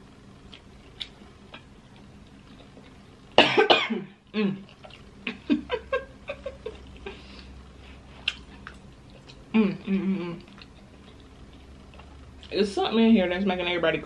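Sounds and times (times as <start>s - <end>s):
woman coughing: 3.4s - 4.1s.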